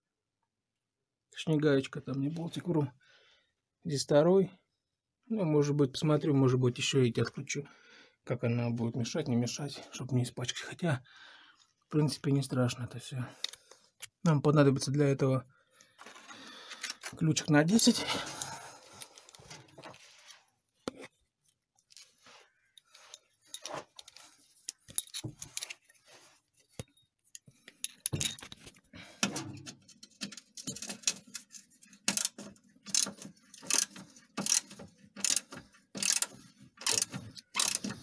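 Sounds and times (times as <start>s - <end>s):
metal tools clinking: 22.8s - 25.9s, 26.8s - 28.6s
ratchet wrench clicking: 32.1s - 38.0s.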